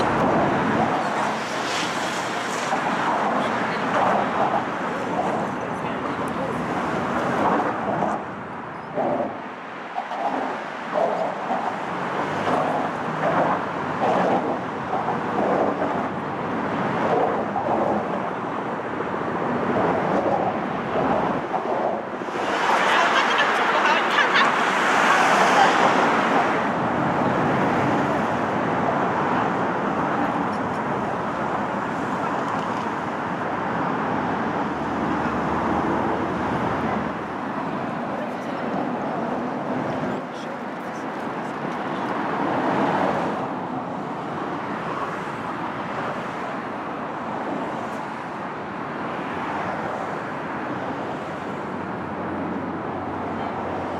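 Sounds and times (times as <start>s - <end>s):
road traffic noise: 0.0s - 53.9s
people talking: 3.2s - 6.8s, 22.7s - 26.1s, 38.1s - 42.2s.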